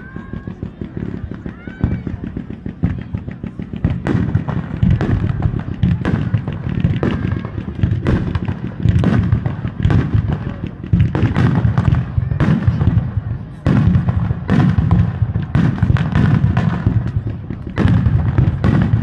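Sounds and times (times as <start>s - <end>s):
firework shells bursting: 0.2s - 19.0s.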